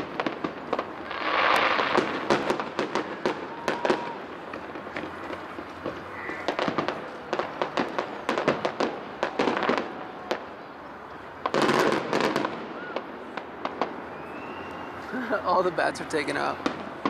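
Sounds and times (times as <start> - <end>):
distant fireworks bangs and crackles: 0.0 - 17.0.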